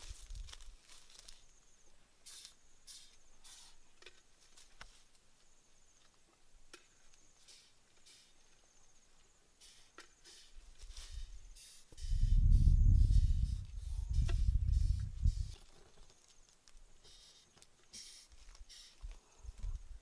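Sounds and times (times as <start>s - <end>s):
high insect trill: 0.0s - 3.8s, 7.1s - 19.0s
leaves and twigs rustling: 0.0s - 9.3s, 10.0s - 11.5s, 12.4s - 20.0s.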